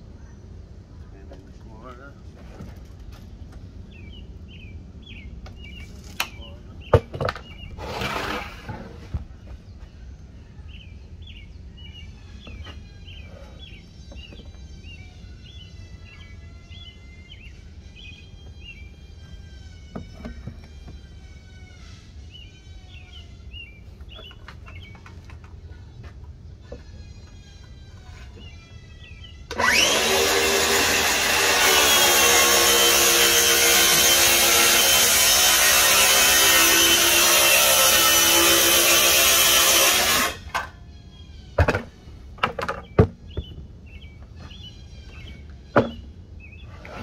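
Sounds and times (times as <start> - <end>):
low outdoor rumble: 0.0 - 29.8, 40.4 - 47.0
small birds chirping: 3.2 - 8.4, 9.0 - 29.8, 40.7 - 47.0.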